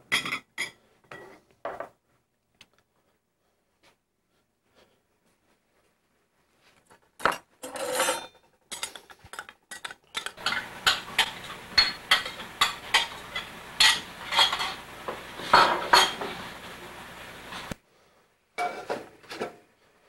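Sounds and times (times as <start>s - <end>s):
metal spoon clinking against bowl: 7.9s - 14.8s
faint steady hum: 10.1s - 18.6s.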